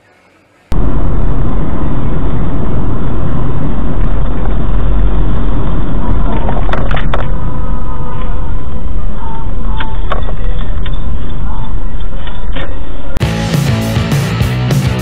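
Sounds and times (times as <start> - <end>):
car engine and tyre rumble: 1.3 - 13.1.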